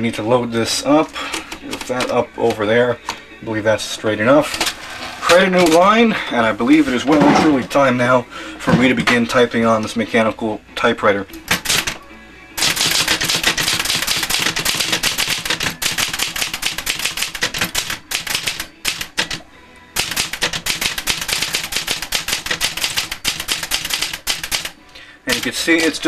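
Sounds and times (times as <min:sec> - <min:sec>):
typewriter typing fast: 0:11.5 - 0:12.0, 0:12.6 - 0:19.4, 0:20.0 - 0:26.0.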